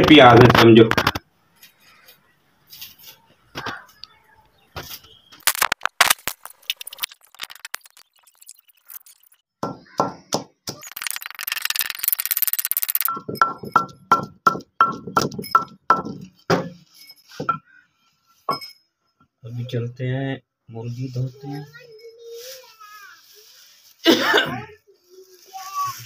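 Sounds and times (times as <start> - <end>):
pestle pounding in a mortar: 13.1 - 16.7.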